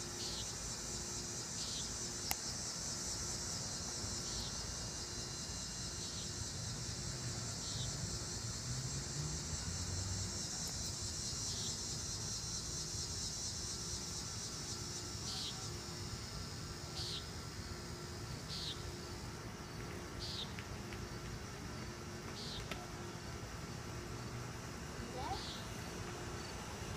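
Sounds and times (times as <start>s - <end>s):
insect chorus: 0.0s - 26.9s.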